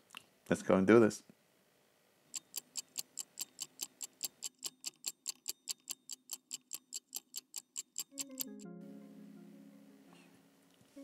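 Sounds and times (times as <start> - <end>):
mechanical watch ticking: 2.3 - 8.6.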